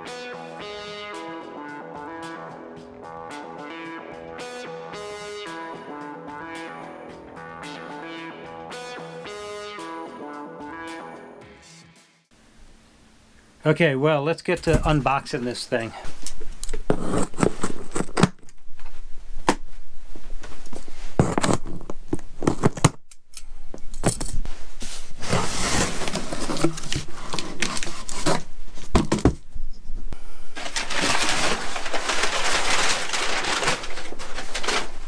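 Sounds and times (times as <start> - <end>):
packing paper rustling: 30.6 - 35.0.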